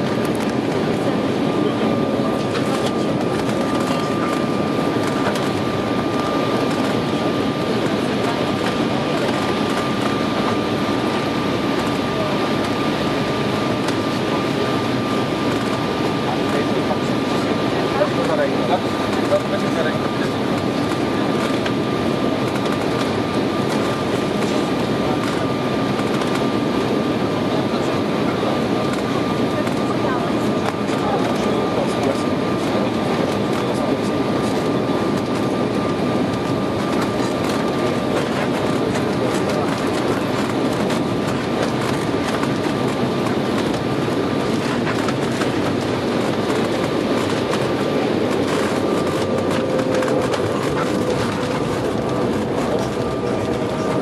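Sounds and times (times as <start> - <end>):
airliner cabin roar: 0.0 - 54.0.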